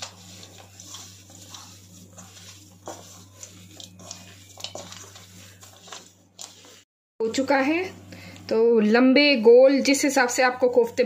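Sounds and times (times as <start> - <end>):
hands squishing dough: 0.0 - 6.9.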